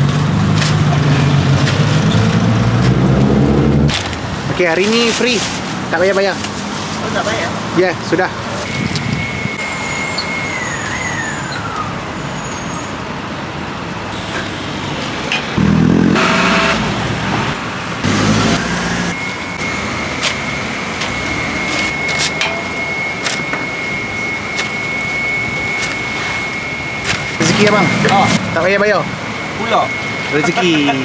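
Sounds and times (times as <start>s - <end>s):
street traffic: 0.0s - 31.0s
vehicle engine revving close by: 0.3s - 4.0s, 15.6s - 19.2s
steady high whine: 15.5s - 31.0s.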